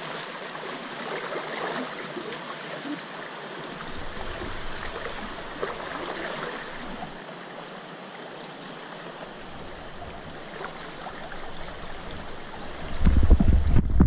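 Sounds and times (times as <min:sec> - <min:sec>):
river water flowing over rocks: 0:00.0 - 0:13.6.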